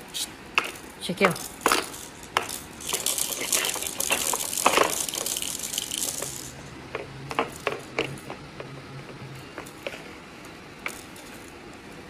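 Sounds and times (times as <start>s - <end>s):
spoon and plastic toy clinking: 0.7s - 6.6s.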